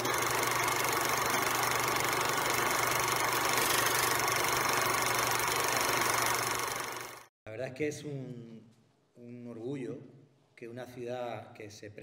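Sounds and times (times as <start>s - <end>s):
film projector whirring and clattering: 0.0s - 7.3s.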